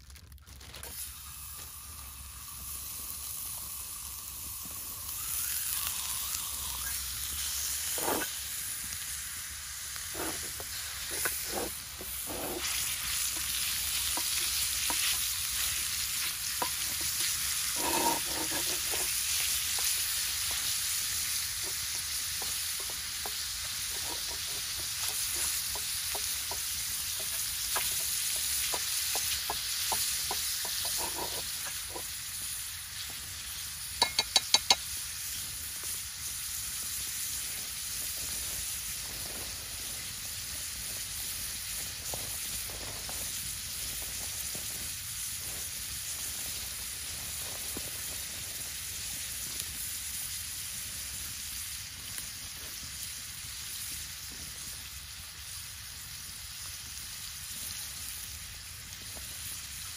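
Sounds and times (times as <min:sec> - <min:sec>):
meat sizzling in a skillet: 0:00.0 - 0:59.9
spatula scraping skillet: 0:06.8 - 0:08.6, 0:10.0 - 0:34.9.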